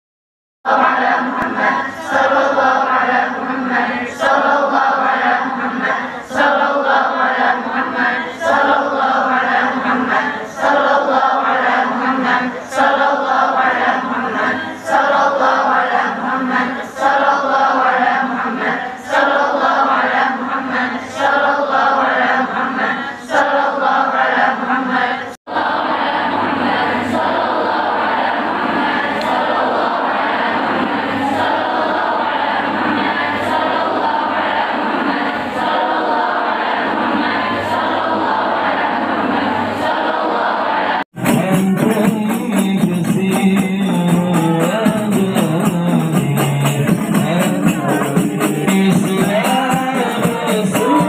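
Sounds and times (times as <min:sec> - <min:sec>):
women chanting in unison: 0:00.7 - 0:41.1.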